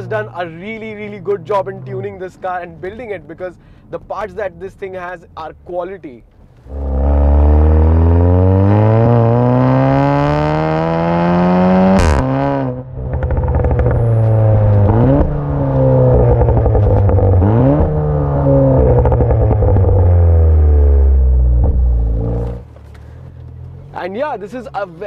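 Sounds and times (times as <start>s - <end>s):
exhaust crack: 6.3s - 24.9s
car engine accelerating hard: 6.6s - 24.1s.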